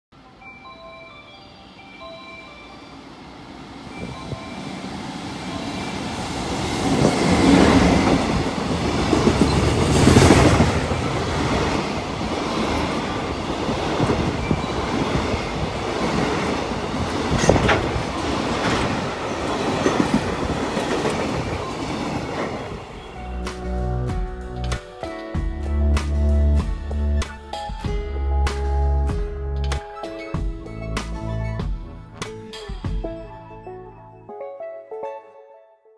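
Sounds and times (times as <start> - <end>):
electric locomotive passing: 0.2 - 23.8
freight wagons rumbling: 6.9 - 22.8
train wheel clicks: 15.8 - 21.6.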